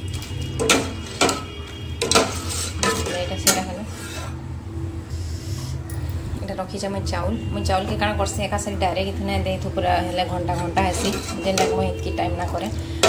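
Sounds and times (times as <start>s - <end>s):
ladle scraping and knocking pot: 0.2s - 4.4s, 10.8s - 12.0s.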